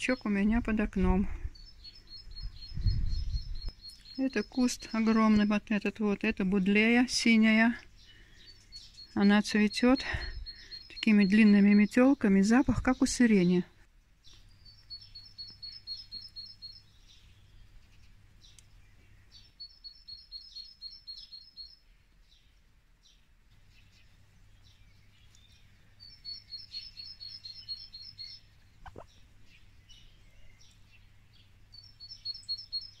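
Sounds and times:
songbird trilling: 0:01.5 - 0:05.6, 0:08.0 - 0:12.3, 0:14.3 - 0:16.8, 0:19.4 - 0:21.8, 0:25.4 - 0:29.2, 0:31.7 - 0:33.0.

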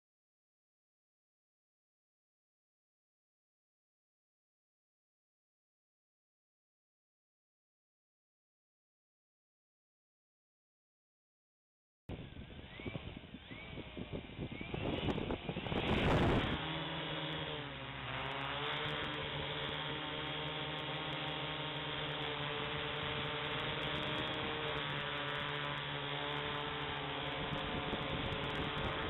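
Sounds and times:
drone propellers buzzing: 0:12.1 - 0:29.0.

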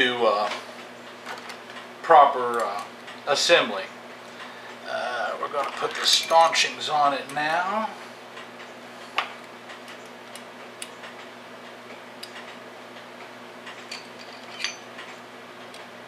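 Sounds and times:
faint steady hum: 0:00.0 - 0:16.0
metallic clicks of clock parts: 0:11.9 - 0:12.6.

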